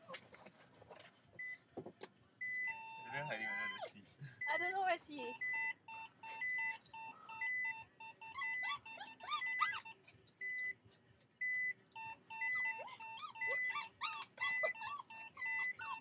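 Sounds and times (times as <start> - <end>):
dogs whining and yowling: 2.5 - 4.0, 5.3 - 10.7, 12.0 - 16.0.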